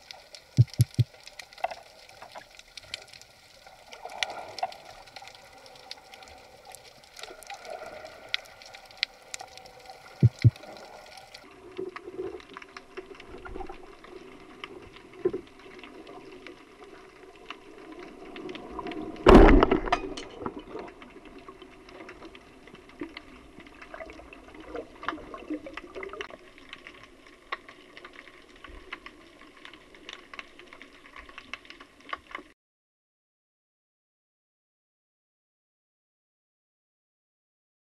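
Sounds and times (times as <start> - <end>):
underwater water hiss: 0.0 - 11.4
crackling clicks: 0.0 - 24.0, 24.7 - 32.5.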